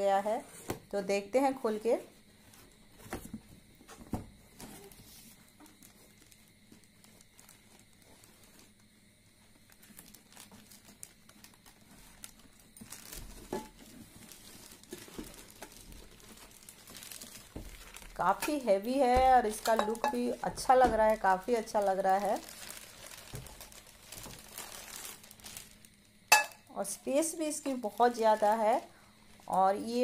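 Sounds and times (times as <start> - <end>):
plastic bag crinkling: 5.7 - 8.8, 9.5 - 26.1, 27.4 - 30.0
cardboard rustling: 9.8 - 18.2, 20.6 - 25.8.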